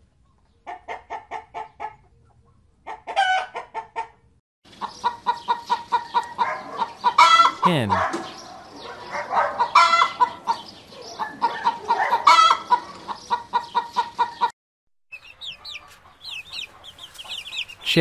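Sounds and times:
hen clucking: 0.6 - 8.1, 9.6 - 14.5, 15.2 - 18.0
chicks peeping: 4.7 - 7.4, 9.6 - 14.5, 15.1 - 18.0.

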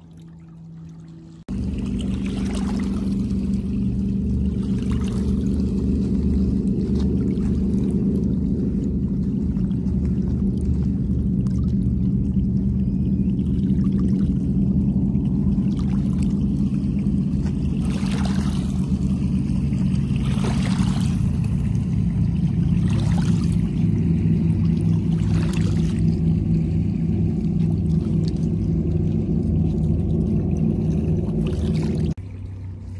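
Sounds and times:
low rumble: 0.0 - 32.9
small waves lapping on rocks: 15.7 - 24.0.

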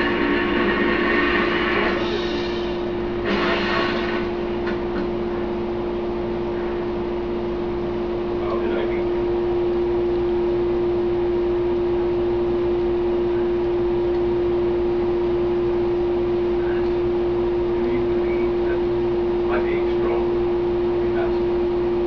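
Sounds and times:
loud steady hum: 0.0 - 22.0.

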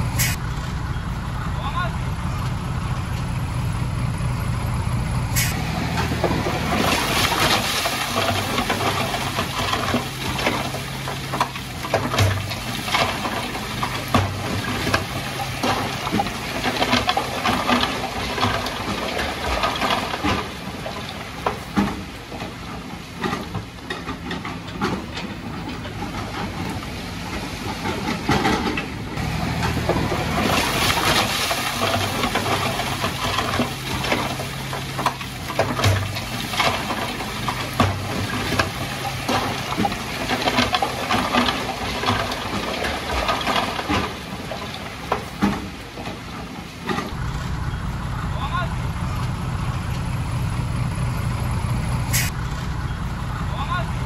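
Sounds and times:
dump truck engine running: 0.0 - 54.0
rocks clattering: 5.7 - 47.3.

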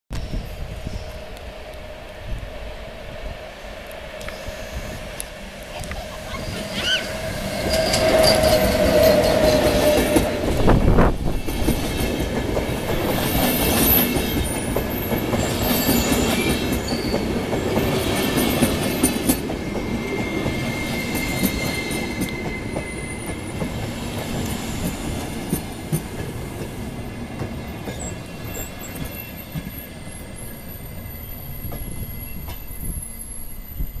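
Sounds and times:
high-pitched brake squeals: 6.1 - 10.4, 13.8 - 18.5, 19.2 - 25.0, 27.9 - 34.0.

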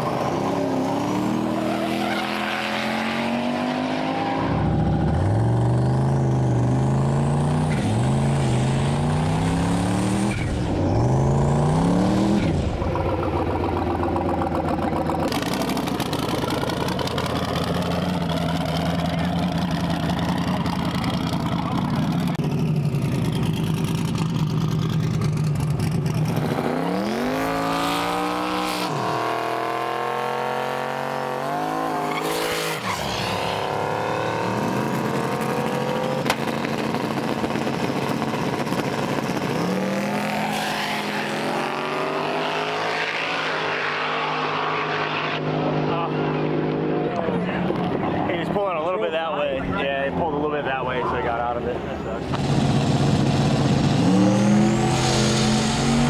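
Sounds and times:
race car engines revving: 0.0 - 56.0
race car engines idling: 12.8 - 26.3
race car passing: 39.8 - 49.0.

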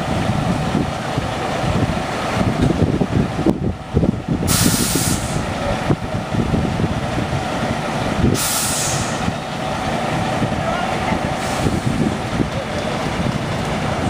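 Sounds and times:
bus engines idling: 0.0 - 14.0
bus air brake hiss: 4.5 - 5.5, 8.3 - 9.3, 11.4 - 12.0.

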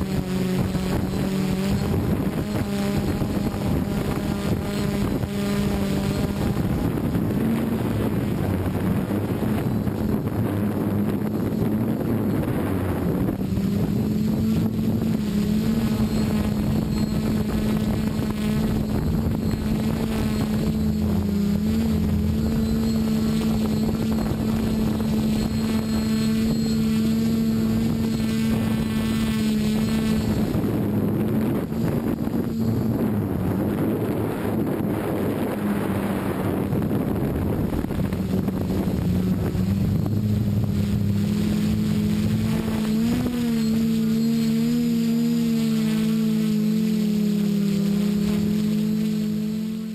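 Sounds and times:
drone propellers humming: 0.0 - 49.9.

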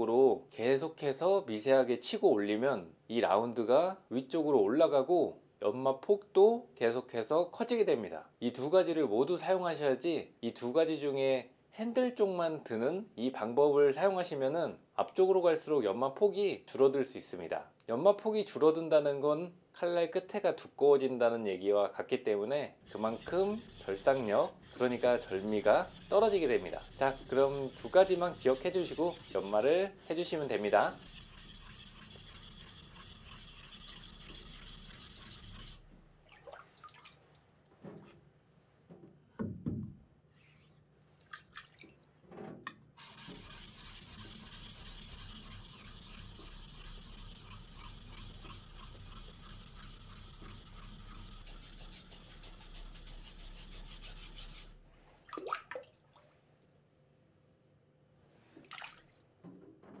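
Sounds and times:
knife scraping on whetstone: 22.9 - 35.8, 43.0 - 54.8.

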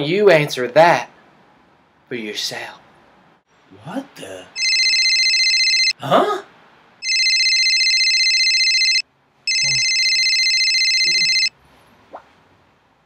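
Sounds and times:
phone ringtone: 4.6 - 6.0, 7.0 - 11.5.

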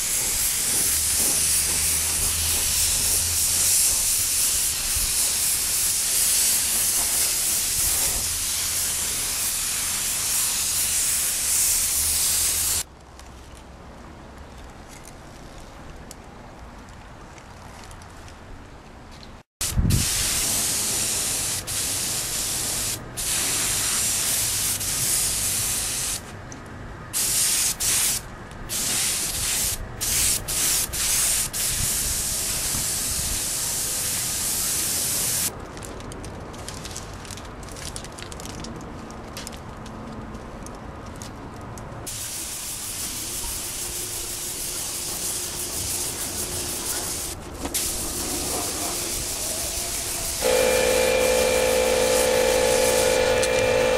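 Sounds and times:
paint spray gun hissing: 0.0 - 12.8, 50.0 - 53.9.

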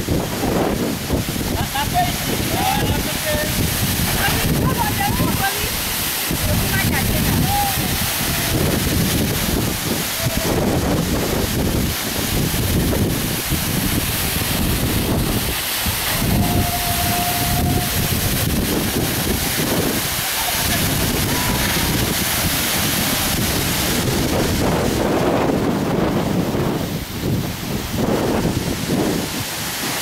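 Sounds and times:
waterfall rushing into a pool: 0.0 - 30.0
wind buffeting microphone: 0.0 - 30.0.

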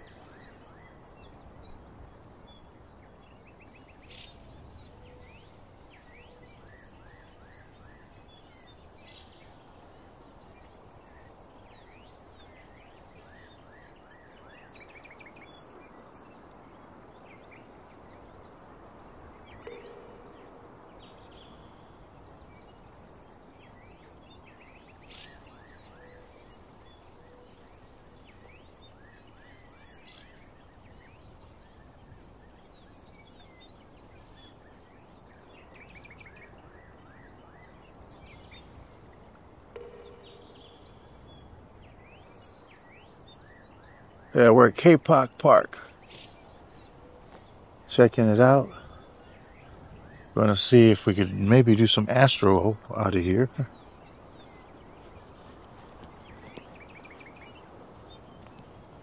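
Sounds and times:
faint high-pitched tones: 0.0 - 46.0
faint background hiss: 0.0 - 59.0
short bird chirps: 39.7 - 41.3.

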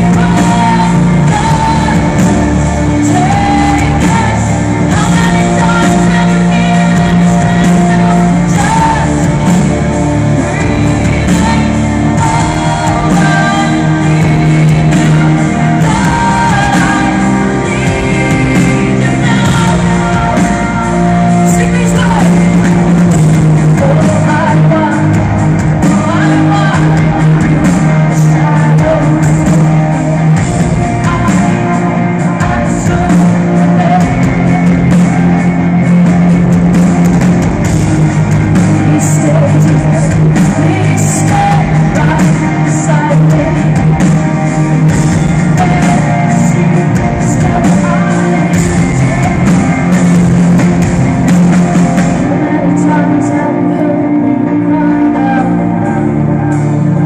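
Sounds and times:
live rock band playing: 0.0 - 57.0
person singing: 0.0 - 57.0.

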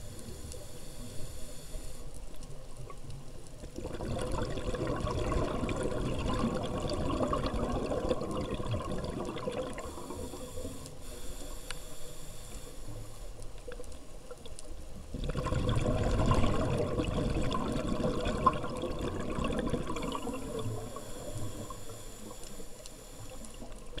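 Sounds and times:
regulator inhalation hiss: 0.0 - 2.3, 9.8 - 13.5, 20.2 - 23.9
regulator exhalation bubbling: 3.8 - 10.8, 15.2 - 22.0.

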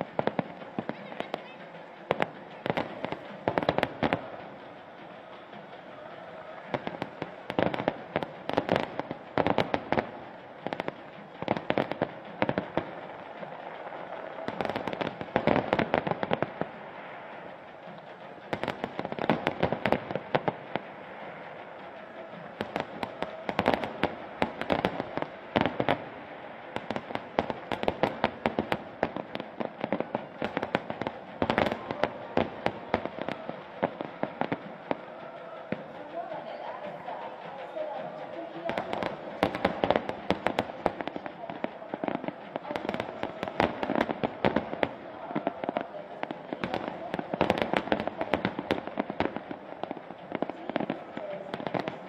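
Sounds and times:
fireworks bursting: 0.0 - 52.0.

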